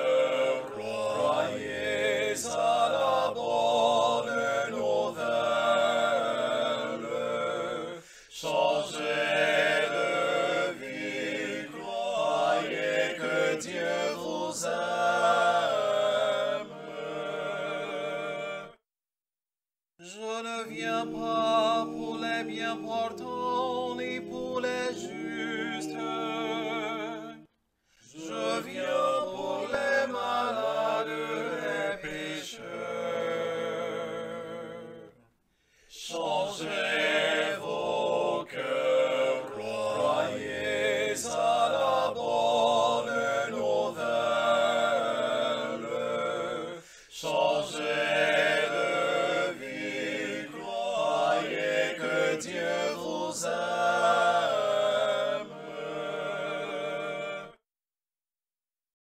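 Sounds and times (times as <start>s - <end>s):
man singing a cappella chant: 0.0s - 18.8s, 20.0s - 35.2s, 35.8s - 57.6s.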